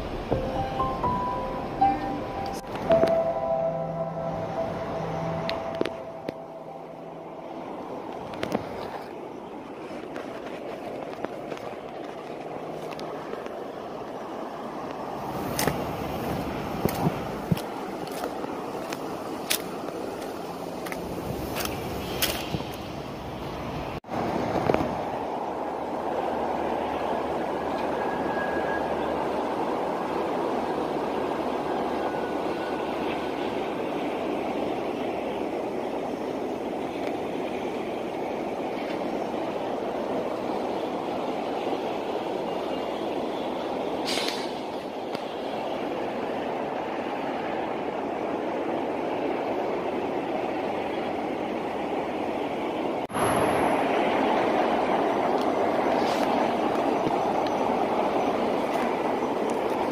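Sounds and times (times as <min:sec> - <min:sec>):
distant road traffic: 0:00.0 - 0:59.9
faint high tone: 0:00.3 - 0:07.7.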